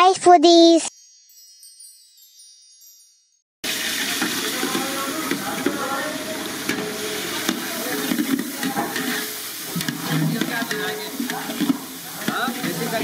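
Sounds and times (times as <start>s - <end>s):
water pouring into a pan: 3.6s - 13.0s
wood fire hissing: 3.6s - 13.0s.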